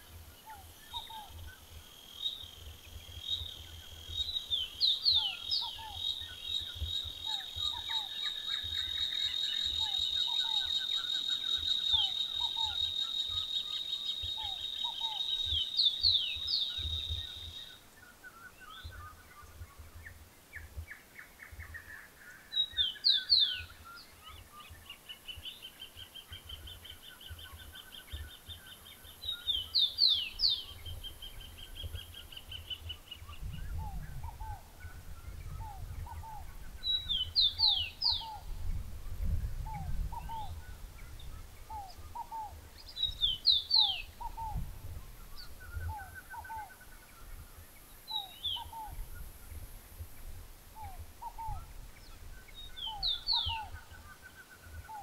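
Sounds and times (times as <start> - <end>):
soft repeated bird notes: 0.0 - 38.8
downward-sweeping whistled bird notes: 2.2 - 19.6, 50.8 - 55.0.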